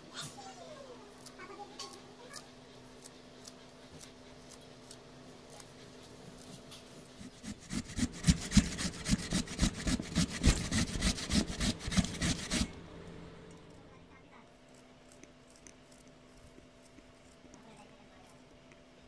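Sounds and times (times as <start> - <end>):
carrot rasping on metal grater: 7.1 - 12.8.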